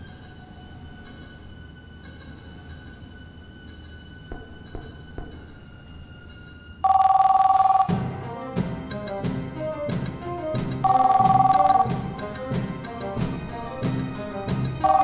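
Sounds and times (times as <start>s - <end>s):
two-tone telephone ring: 6.8s - 7.9s, 10.8s - 11.9s
jazzy music with walking bass: 7.9s - 15.0s.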